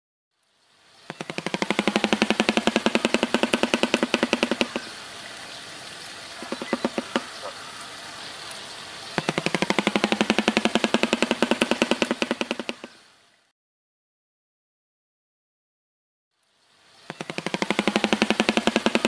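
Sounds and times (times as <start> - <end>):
bird bill clattering: 1.2 - 4.9, 6.4 - 7.6.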